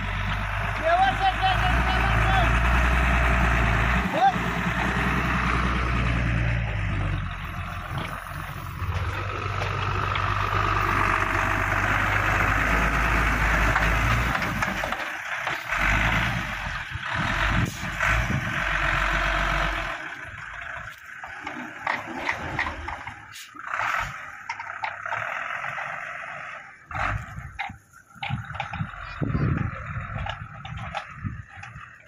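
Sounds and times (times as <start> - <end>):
truck diesel engine running: 0.0 - 32.0
clatter: 6.7 - 19.2, 19.8 - 26.2, 26.9 - 32.0.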